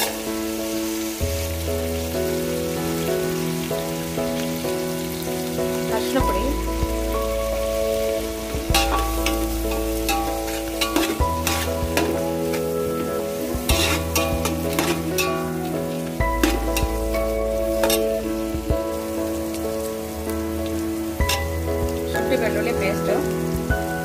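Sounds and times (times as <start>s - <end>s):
vegetables sizzling in oil: 0.0s - 24.0s
spatula scraping and knocking pot: 8.7s - 12.2s, 13.7s - 15.3s.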